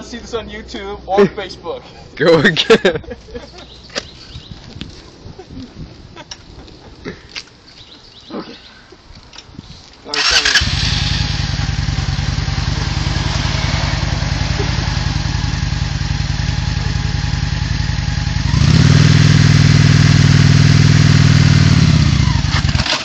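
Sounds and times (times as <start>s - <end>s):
motorcycle engine idling and revving: 10.2s - 23.0s.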